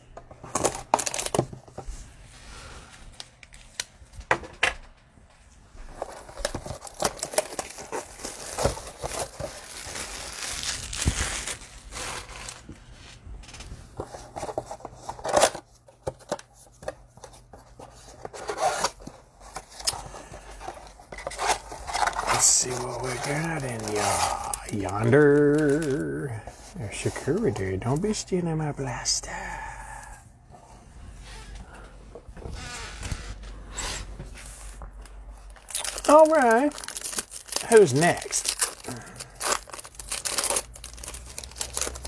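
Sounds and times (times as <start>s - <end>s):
plastic wrap and foil tearing: 0.6s - 1.5s, 6.0s - 12.6s, 21.2s - 27.5s, 35.5s - 42.0s.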